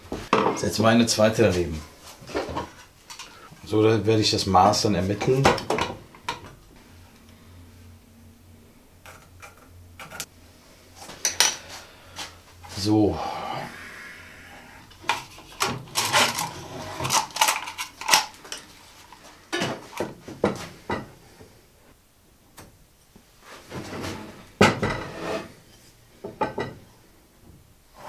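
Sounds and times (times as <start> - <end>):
metal tools clinking on steel: 11.2 - 11.6.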